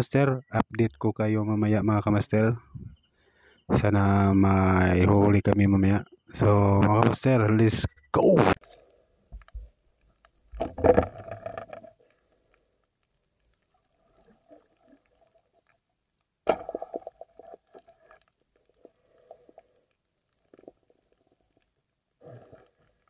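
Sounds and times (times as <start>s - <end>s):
faint clicks: 8.6s - 10.6s, 11.2s - 16.4s, 17.0s - 23.0s
underwater bubbling and crackling: 8.6s - 23.0s.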